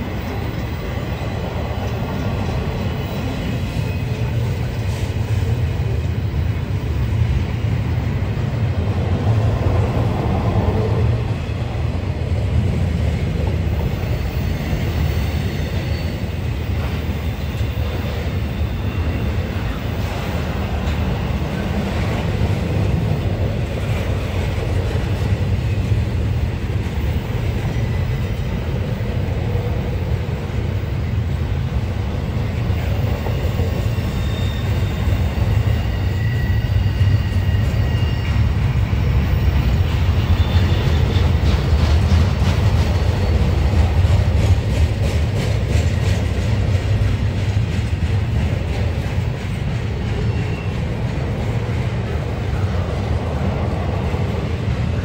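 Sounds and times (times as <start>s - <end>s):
freight train rumbling past: 0.0s - 55.0s
faint high wheel squeals: 0.1s - 5.0s, 13.8s - 20.1s, 31.9s - 41.6s, 50.1s - 51.0s.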